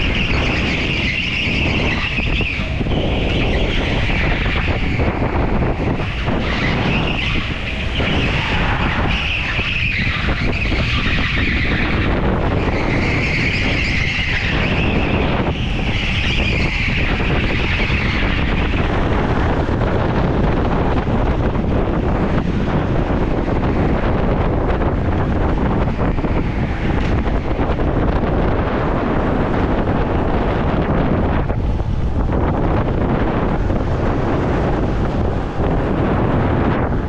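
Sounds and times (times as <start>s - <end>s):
tyre squeal: 0.0s - 19.9s
go-kart motor and tyre rumble: 0.0s - 37.0s.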